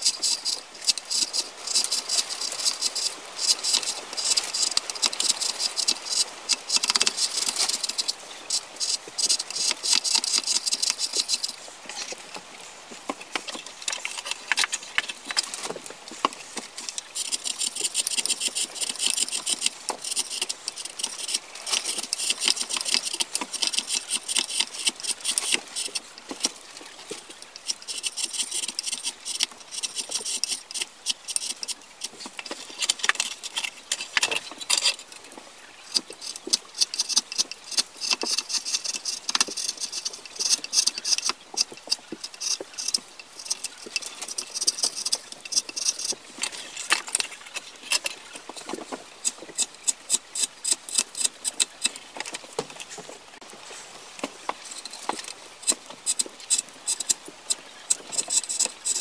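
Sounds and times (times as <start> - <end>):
chisel rasping through wood: 0.0 - 11.6, 17.2 - 26.6, 35.9 - 46.2.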